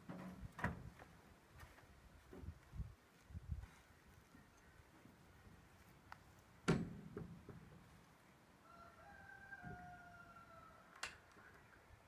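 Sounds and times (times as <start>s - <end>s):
distant rooster crowing: 8.6s - 11.0s.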